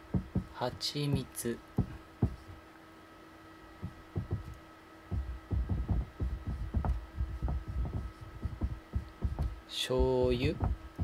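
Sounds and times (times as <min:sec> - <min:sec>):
faint electrical hum: 0:00.0 - 0:11.0
marker writing on whiteboard: 0:00.1 - 0:02.6, 0:05.1 - 0:09.6.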